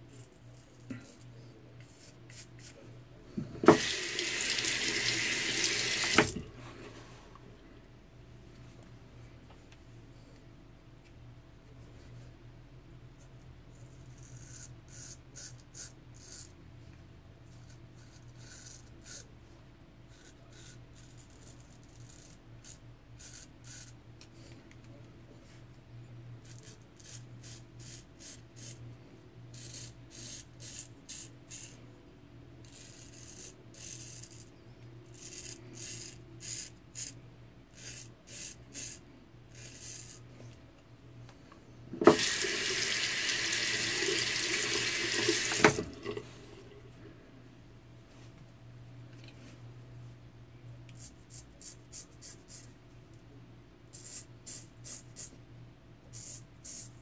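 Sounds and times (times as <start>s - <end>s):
water running into sink: 3.6s - 6.4s, 42.0s - 46.3s.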